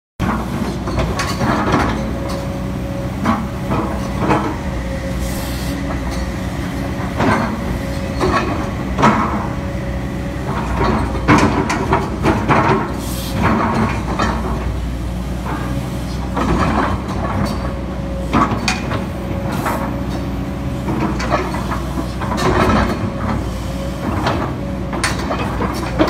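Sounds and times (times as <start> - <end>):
excavator diesel engine: 0.2 - 26.0
hydraulic whine: 0.6 - 14.1
metal knocks and clanks: 5.9 - 9.6, 10.4 - 14.7.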